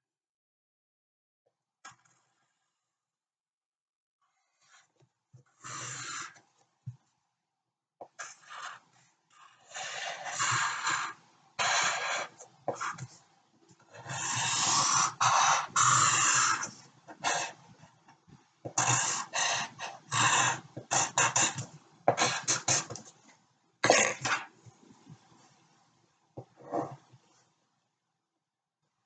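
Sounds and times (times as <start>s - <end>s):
pencil scratching on paper: 8.1s - 8.9s, 9.7s - 13.2s, 18.7s - 23.2s.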